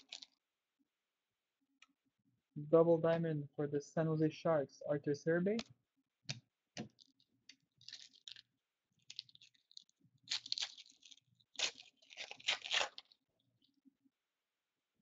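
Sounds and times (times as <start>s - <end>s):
wrapper crinkling and tearing: 0.0s - 0.4s, 6.9s - 13.2s.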